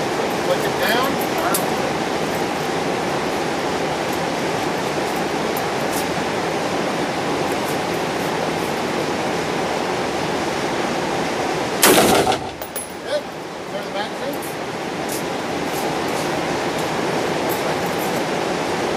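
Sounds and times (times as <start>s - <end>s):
steady rushing noise: 0.0s - 18.9s
rifle shot: 11.8s - 12.8s.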